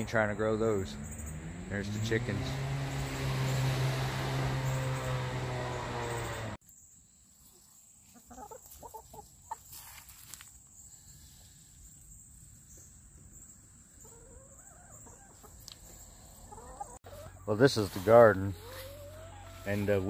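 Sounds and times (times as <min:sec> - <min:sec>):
chicken clucking: 0:07.6 - 0:09.9, 0:13.9 - 0:20.0.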